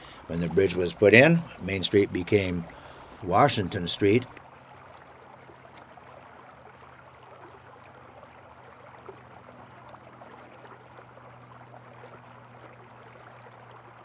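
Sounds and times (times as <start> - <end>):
faint steady hiss: 0.0 - 4.4.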